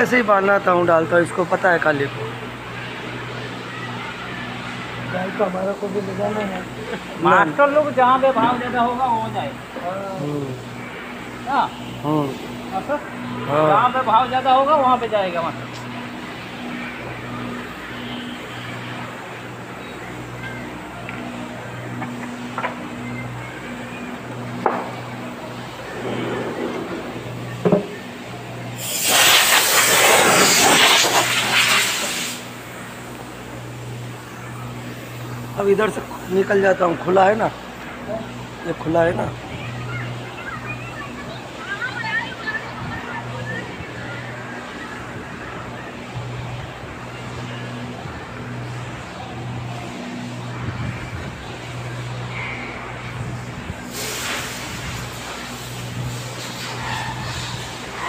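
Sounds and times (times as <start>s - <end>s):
low machine hum: 0.0s - 29.0s, 29.8s - 58.0s
noisy background: 0.0s - 58.0s
loud hiss of escaping air: 28.8s - 32.6s, 53.8s - 57.8s.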